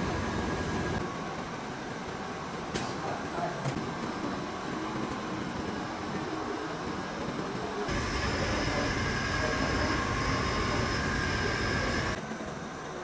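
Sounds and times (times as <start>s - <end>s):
machinery noise: 0.0s - 1.0s, 4.3s - 12.2s.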